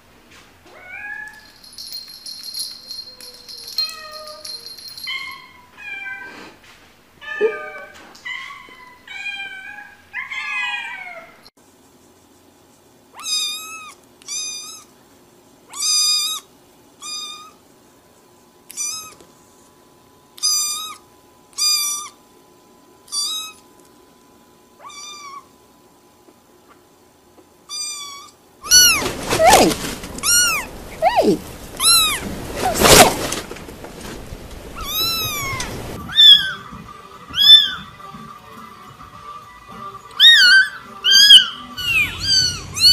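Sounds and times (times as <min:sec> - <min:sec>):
background hiss: 0:11.6 - 0:42.9
kitten mewing: 0:18.7 - 0:19.2, 0:27.7 - 0:33.1, 0:40.2 - 0:42.9.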